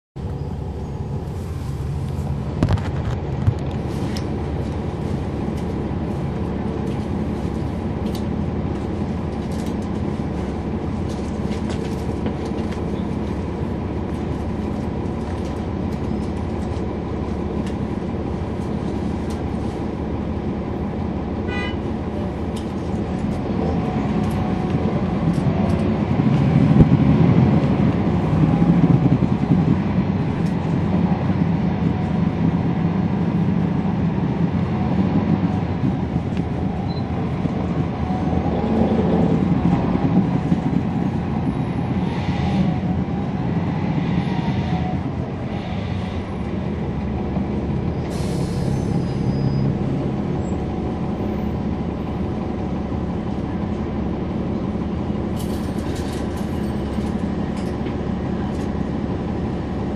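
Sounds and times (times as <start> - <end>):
bus diesel engine running: 0.2 - 59.9.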